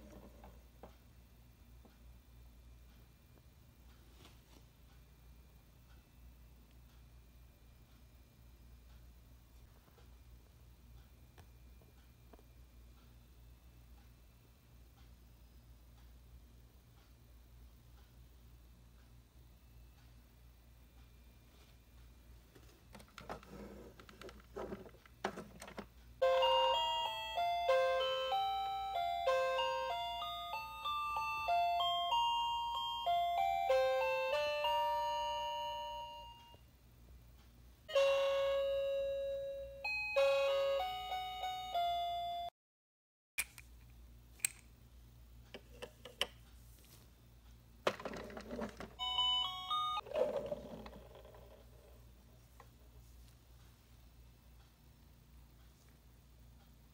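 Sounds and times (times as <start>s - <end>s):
toy beeping jingle: 26.2s - 36.6s, 37.9s - 42.5s, 49.0s - 50.1s.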